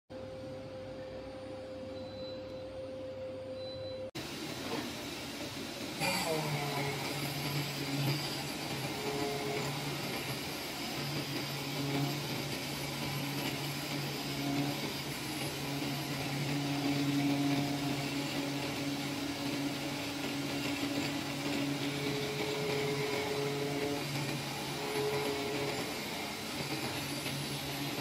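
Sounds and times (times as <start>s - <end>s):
oscillating knife cutter hum: 5.8s - 28.0s.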